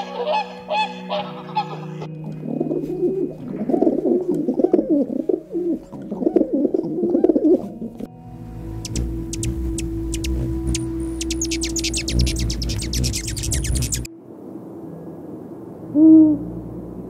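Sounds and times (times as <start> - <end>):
birds cooing: 0.0 - 8.1, 8.8 - 14.1.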